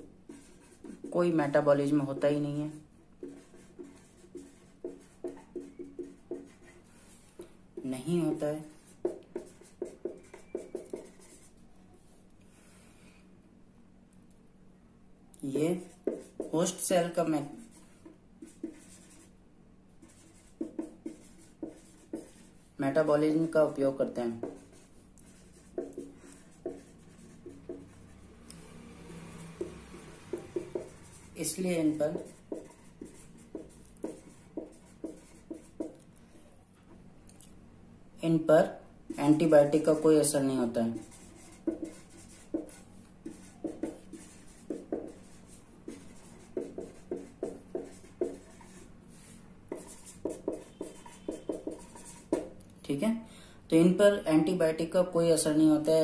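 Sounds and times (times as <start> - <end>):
marker pen writing on paper: 0.0 - 11.6, 15.6 - 19.4, 20.0 - 28.2, 29.1 - 36.1, 40.8 - 52.6
marker pen squeaking on paper: 9.0 - 11.6, 49.7 - 52.5.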